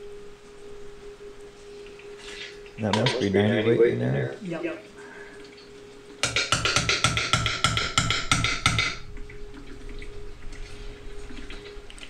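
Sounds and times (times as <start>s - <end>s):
ringing metal strikes: 6.2s - 9.0s.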